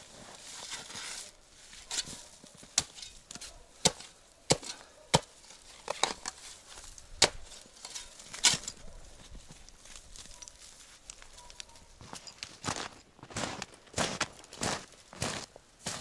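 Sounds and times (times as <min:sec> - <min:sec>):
spade chopping into ground: 0:01.9 - 0:06.4, 0:07.1 - 0:08.8.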